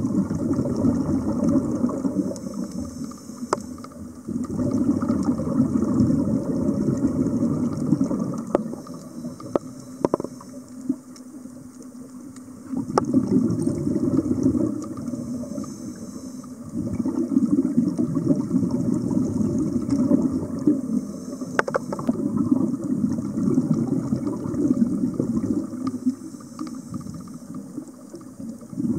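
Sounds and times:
underwater gurgling and bubbling: 0:00.0 - 0:28.9
faint clicks: 0:01.4 - 0:05.3, 0:07.7 - 0:16.7, 0:19.8 - 0:22.2, 0:25.4 - 0:28.7.

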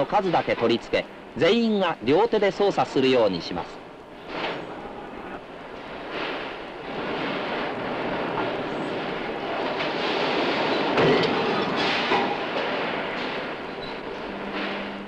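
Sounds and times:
metallic clanks: 0:08.2 - 0:15.0.

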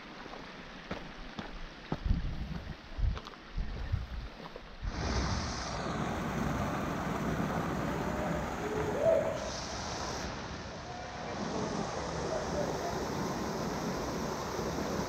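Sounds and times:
short rising hoot: 0:08.1 - 0:09.7.

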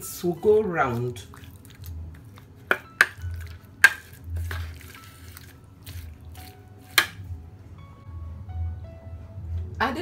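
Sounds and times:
wet squishing paste: 0:00.7 - 0:07.2.

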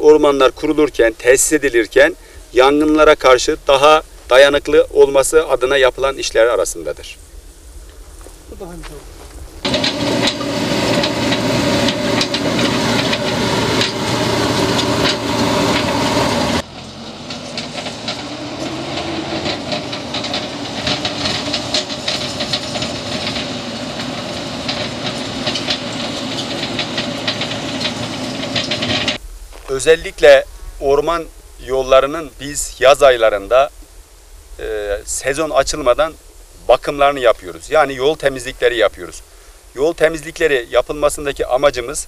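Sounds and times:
diesel engine running: 0:09.6 - 0:29.2.

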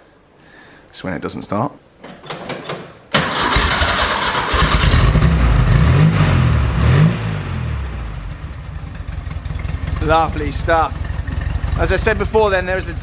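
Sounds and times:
car engine revving and idling: 0:04.6 - 0:13.0.

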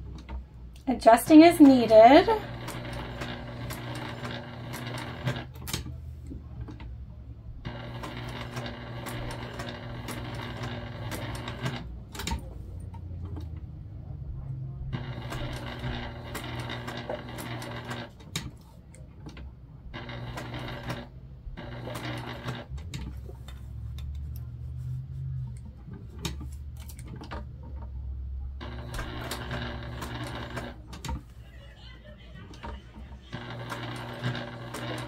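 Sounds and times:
electric sewing machine stitching: 0:01.0 - 0:05.9, 0:07.6 - 0:12.5, 0:15.0 - 0:18.4, 0:20.0 - 0:23.4, 0:28.6 - 0:31.3, 0:32.6 - 0:35.0.

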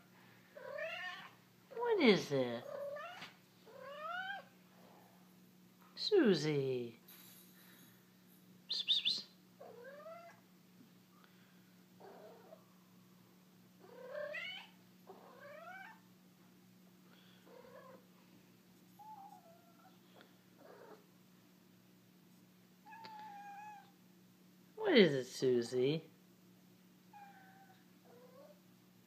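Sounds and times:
cat yowling: 0:00.6 - 0:01.3, 0:02.7 - 0:04.5, 0:09.6 - 0:10.4, 0:13.8 - 0:16.0, 0:22.9 - 0:23.9, 0:27.1 - 0:28.6.

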